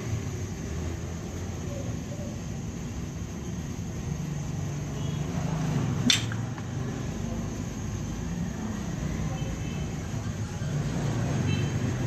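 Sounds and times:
sharp click: 0:06.0 - 0:06.7.

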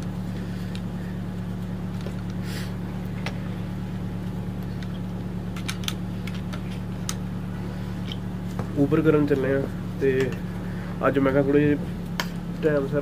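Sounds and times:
low mechanical hum: 0:00.0 - 0:13.0.

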